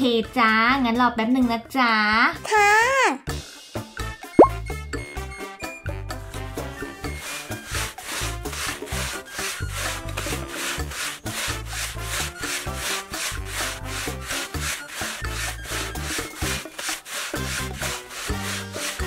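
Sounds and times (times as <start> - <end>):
background music: 0.0 - 19.0
ice shaving scraping strokes: 6.5 - 19.0.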